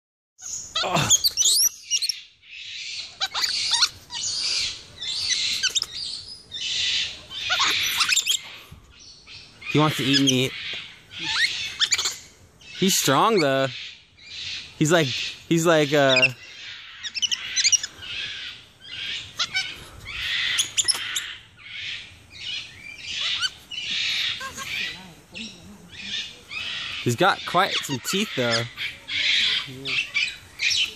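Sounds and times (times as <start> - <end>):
monkey screeching: 0.4 - 2.2, 3.0 - 6.0, 6.6 - 8.5, 9.6 - 22.0, 23.0 - 25.0, 25.9 - 30.9
monkey squeaky chirps: 0.4 - 2.2, 3.0 - 6.1, 7.3 - 8.5, 11.2 - 12.2, 17.0 - 17.9, 18.9 - 19.7, 20.3 - 21.4, 23.0 - 25.0.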